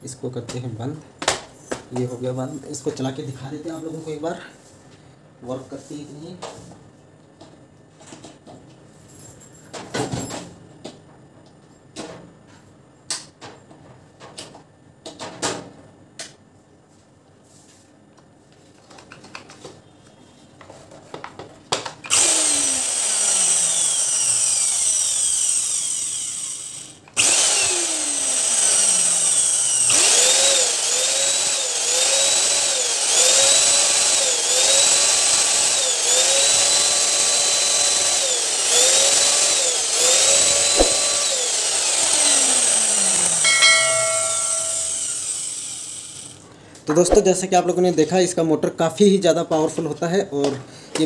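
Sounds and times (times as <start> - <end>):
vacuum cleaner motor whining: 22.1 - 46.3.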